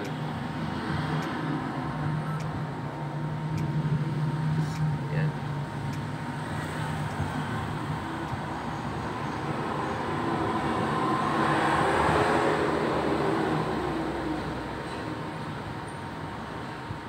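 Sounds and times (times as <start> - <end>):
vehicle passing: 0.0 - 14.8.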